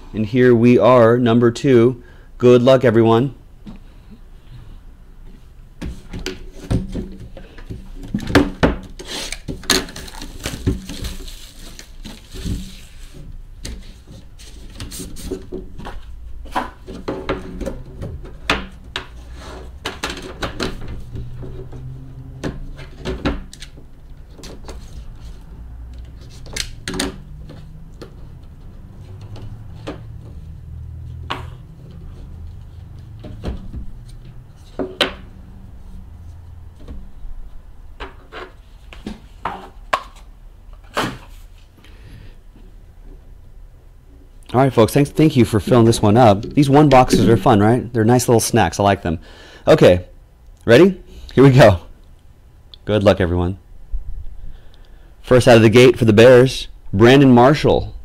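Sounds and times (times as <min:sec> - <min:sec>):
packaging rustling: 0:09.3 - 0:13.2.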